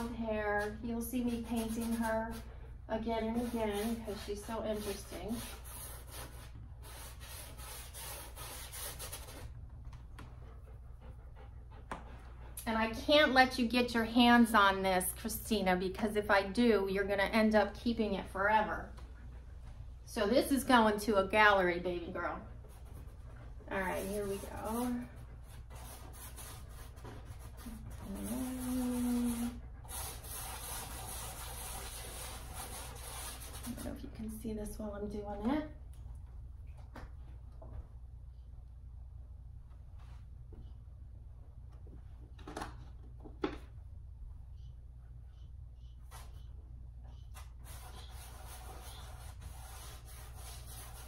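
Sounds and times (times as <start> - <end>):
paintbrush scratching on canvas: 0.0 - 9.5, 22.6 - 34.0, 46.1 - 51.0
person humming: 28.0 - 29.6.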